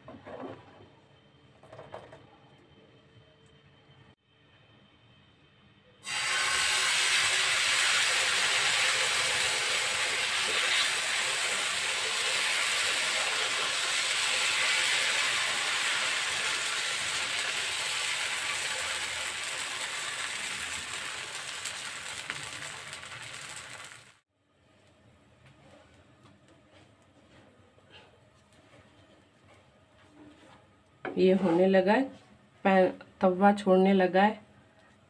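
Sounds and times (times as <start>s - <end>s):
batter sizzling on a hot pan: 6.0s - 24.2s.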